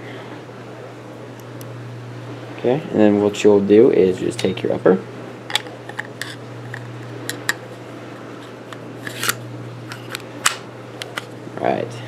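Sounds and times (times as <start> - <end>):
metal scrape: 5.6 - 7.6.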